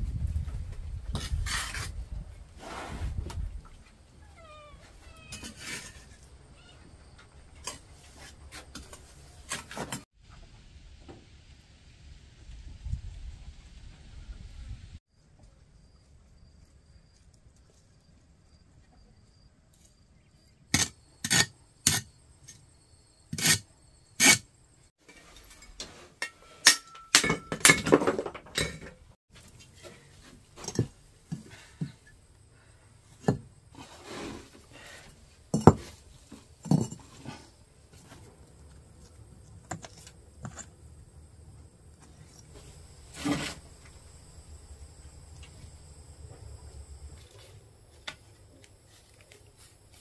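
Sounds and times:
clay bricks clinking: 0:35.5 - 0:38.3.

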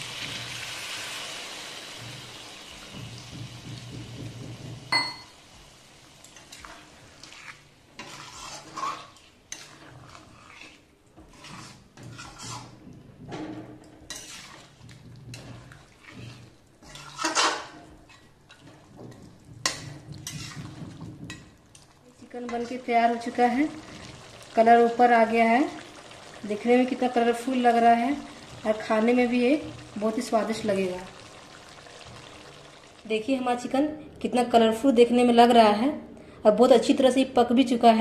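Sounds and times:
water hissing in hot pan: 0:00.0 - 0:09.2, 0:23.2 - 0:33.1
spatula scraping metal pan: 0:06.4 - 0:13.3, 0:14.0 - 0:21.5.

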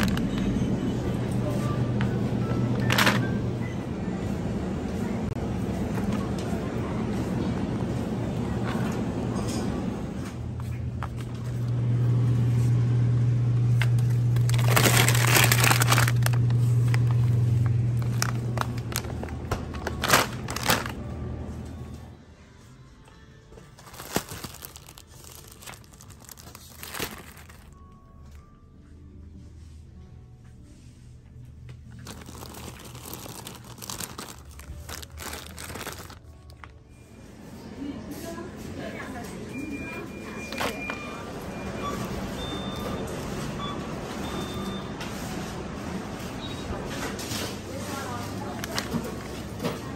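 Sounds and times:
quiet background music: 0:00.0 - 0:12.4, 0:14.2 - 0:49.9
plastic bag crinkling: 0:02.7 - 0:03.3, 0:13.9 - 0:21.0, 0:23.7 - 0:27.8, 0:31.9 - 0:36.8.

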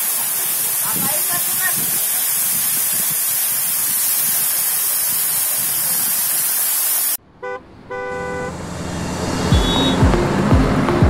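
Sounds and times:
waterfall rushing onto rocks: 0:00.0 - 0:07.2
horn-like honk: 0:07.4 - 0:08.6, 0:09.5 - 0:10.1
short beep: 0:09.5 - 0:10.0.

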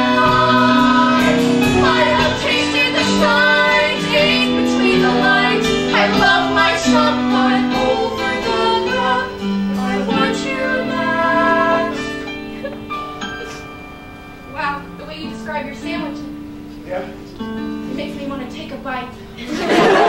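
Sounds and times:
woman singing: 0:00.0 - 0:12.0
instrumental accompaniment: 0:00.0 - 0:20.0.

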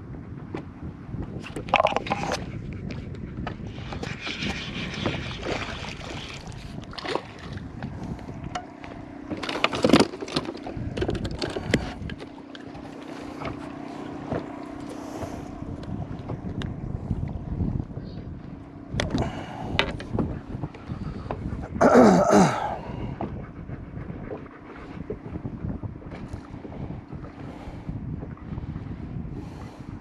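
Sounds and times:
steady low hum: 0:00.0 - 0:30.0
wind on microphone: 0:00.0 - 0:30.0
gear knocking and rustling: 0:08.4 - 0:14.6.

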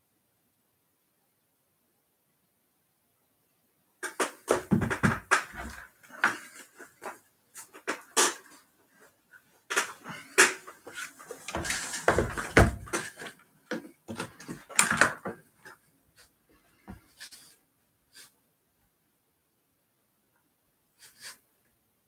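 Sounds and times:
handling knocks and taps: 0:04.0 - 0:06.4
heavy thumps: 0:04.0 - 0:06.4.

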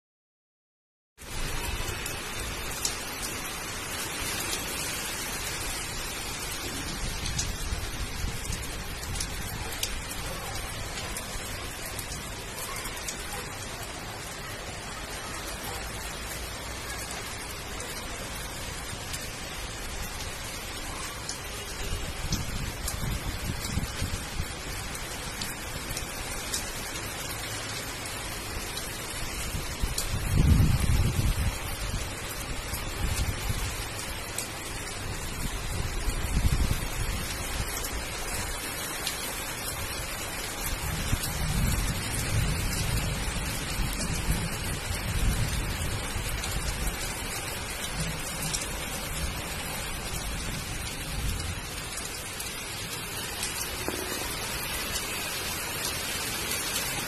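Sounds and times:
rain on concrete: 0:01.2 - 0:57.0
sharp rain drop ticks: 0:28.6 - 0:30.7, 0:38.9 - 0:57.0.

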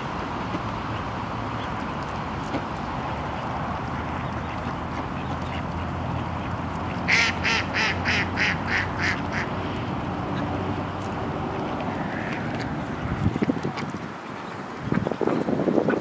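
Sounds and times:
duck quacking: 0:03.9 - 0:09.6.

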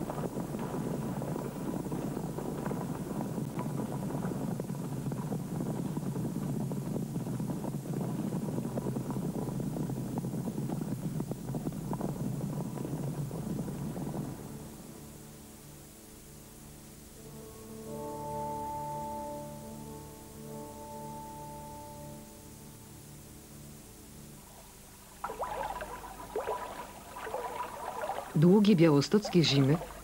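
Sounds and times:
hoofbeats in snow: 0:00.0 - 0:15.2
snow crunching: 0:25.2 - 0:30.0.

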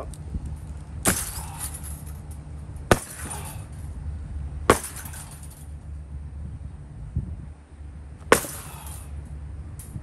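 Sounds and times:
sledgehammer crashing on wreckage: 0:02.9 - 0:03.5, 0:04.7 - 0:05.6, 0:08.3 - 0:09.0.

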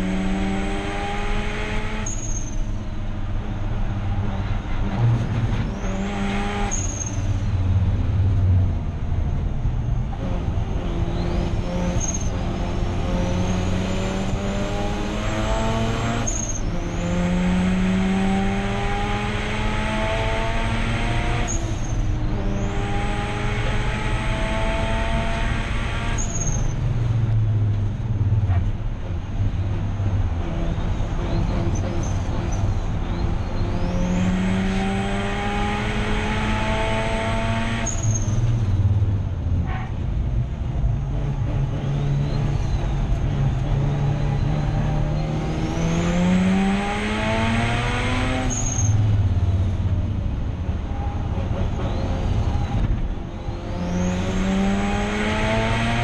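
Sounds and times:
race car engine revving: 0:00.0 - 0:02.4, 0:10.2 - 0:26.8, 0:30.2 - 0:38.7, 0:41.0 - 0:49.8, 0:51.0 - 0:56.0
high engine whine: 0:00.0 - 0:56.0.

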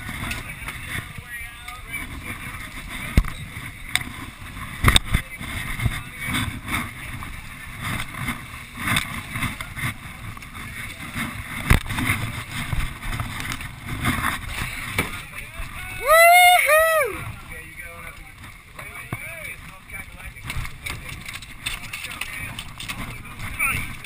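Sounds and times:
rough sea washing: 0:00.0 - 0:24.0
wind buffeting microphone: 0:00.0 - 0:24.0.

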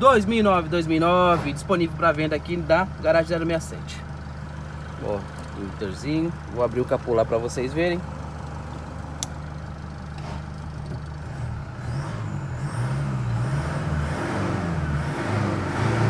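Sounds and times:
diesel engine idling and revving: 0:00.0 - 0:16.0
hood release click: 0:09.1 - 0:09.4.

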